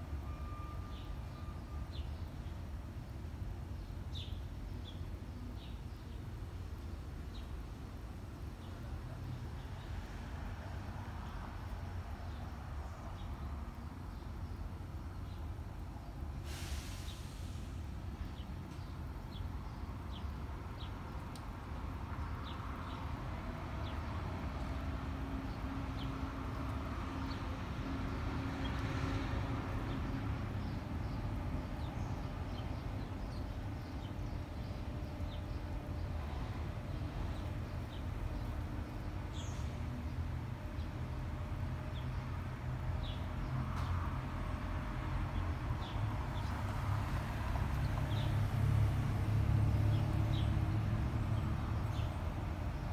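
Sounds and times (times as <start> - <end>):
small birds chirping: 3.7 - 7.8, 18.2 - 44.0, 45.3 - 46.7, 47.7 - 48.5, 49.7 - 52.9
brief hiss: 16.4 - 17.9.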